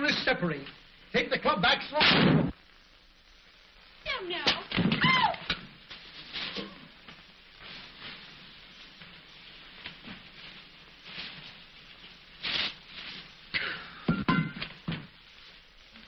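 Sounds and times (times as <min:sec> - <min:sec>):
film soundtrack hiss: 0:00.0 - 0:16.0
paper rustling and crinkling: 0:05.9 - 0:06.9.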